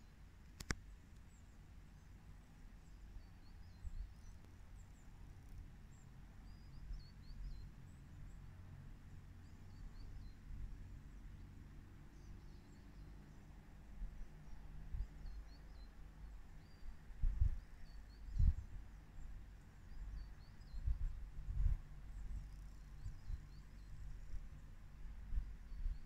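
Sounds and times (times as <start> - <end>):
low rumble of wind: 0.0 - 26.0
faint high bird chirps: 1.3 - 8.4, 14.2 - 24.6, 25.3 - 26.0.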